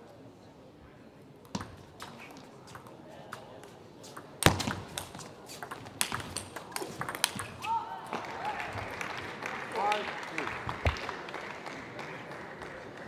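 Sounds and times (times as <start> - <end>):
table tennis ball clicking: 4.4 - 7.6.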